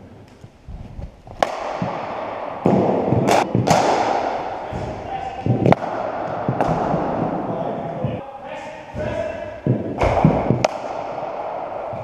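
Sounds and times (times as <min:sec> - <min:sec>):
cricket ball cracking off bat: 0:01.4 - 0:07.2
thud: 0:01.4 - 0:07.4, 0:08.9 - 0:12.0.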